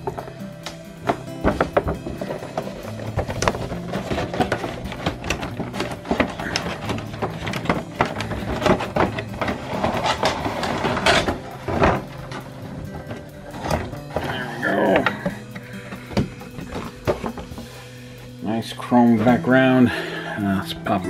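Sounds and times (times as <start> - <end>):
cardboard box handled: 1.0 - 17.8
plastic packaging crinkling: 1.1 - 18.0.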